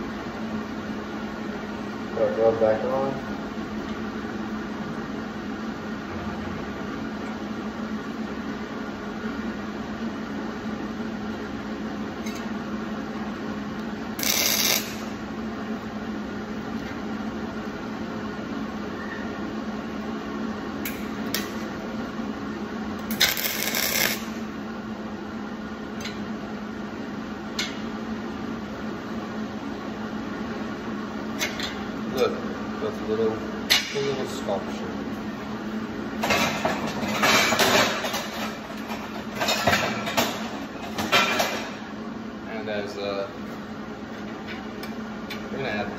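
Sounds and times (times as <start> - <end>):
steady machine hum: 0.0 - 45.9
welding arc crackle: 14.2 - 15.2, 23.0 - 24.5.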